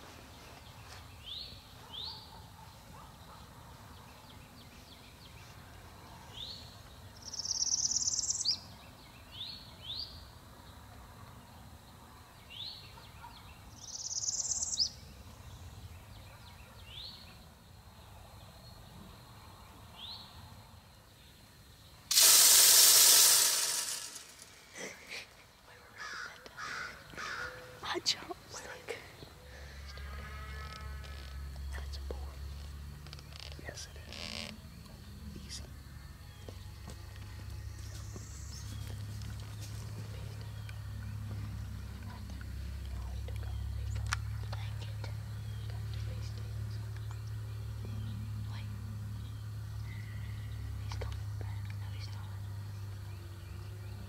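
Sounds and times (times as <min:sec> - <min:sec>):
birds chirping: 0:00.0 - 0:10.2, 0:12.4 - 0:17.7, 0:23.3 - 0:54.0.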